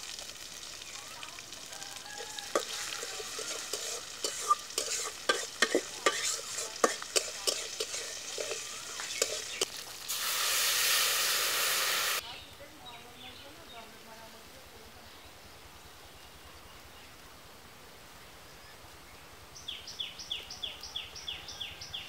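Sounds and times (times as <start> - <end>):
food sizzling in oil: 0.0 - 12.2
water hissing in hot pan: 0.0 - 12.2
metal spatula scraping wok: 2.2 - 9.8.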